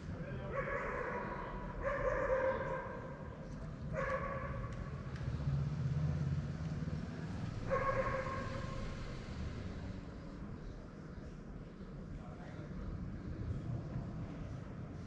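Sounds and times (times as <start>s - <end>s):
dog barking: 0.4s - 4.9s, 7.6s - 8.9s.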